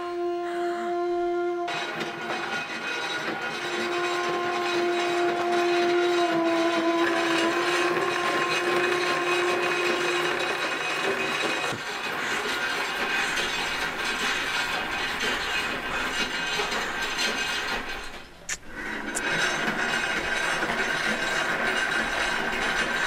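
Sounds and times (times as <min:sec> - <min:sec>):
long held musical note: 0:00.0 - 0:01.7
sewing machine clattering: 0:01.7 - 0:23.0.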